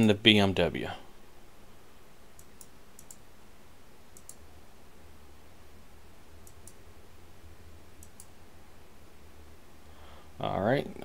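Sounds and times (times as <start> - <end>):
faint low hum: 0.0 - 11.0
computer mouse clicks: 2.4 - 3.2, 4.2 - 4.4, 6.4 - 6.8, 8.0 - 8.4.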